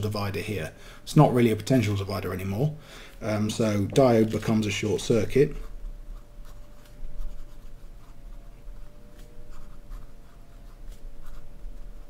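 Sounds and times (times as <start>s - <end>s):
pen scratching on paper: 5.4s - 12.0s.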